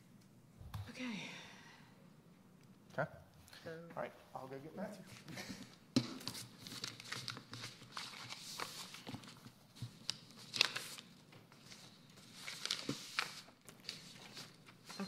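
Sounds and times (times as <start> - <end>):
paper rustling: 5.1 - 15.0.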